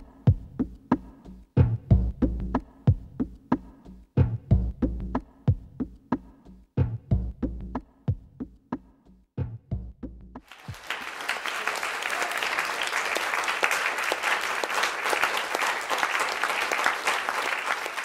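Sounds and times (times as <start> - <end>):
drum machine beats: 0.0 - 10.8
audience applauding: 10.4 - 18.0.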